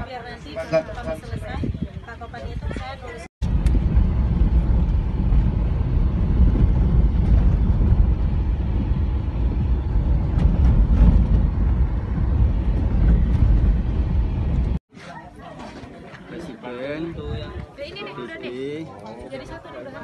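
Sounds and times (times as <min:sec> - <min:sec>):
vehicle driving on dirt road: 0:03.4 - 0:14.8.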